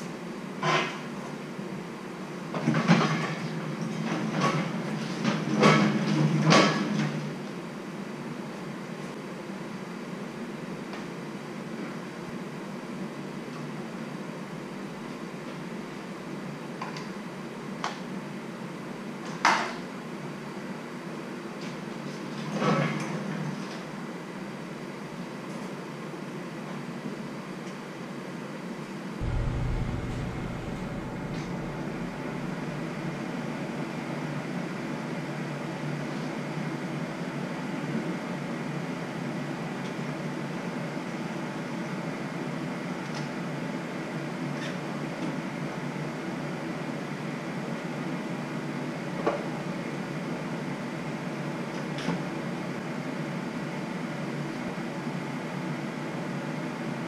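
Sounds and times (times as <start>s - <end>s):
mechanical hum: 0.0s - 22.5s, 23.4s - 57.0s
deep rumble: 29.2s - 34.0s
ventilation fan hum: 29.2s - 39.3s.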